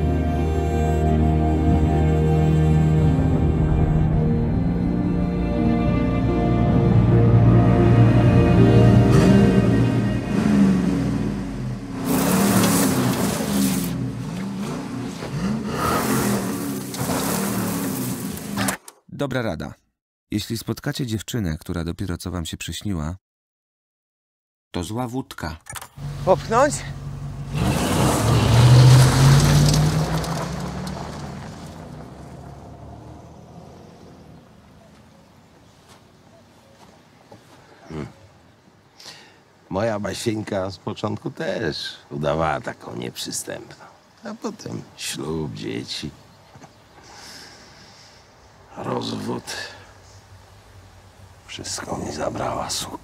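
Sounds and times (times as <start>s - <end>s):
car engine revving: 8.8s - 18.7s, 26.0s - 34.8s
spinning tyre throwing dirt: 12.0s - 18.9s, 27.4s - 34.7s.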